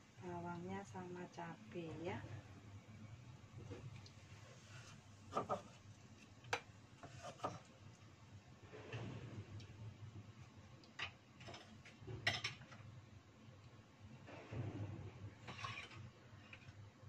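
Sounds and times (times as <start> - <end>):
low steady hum: 0.0 - 7.0.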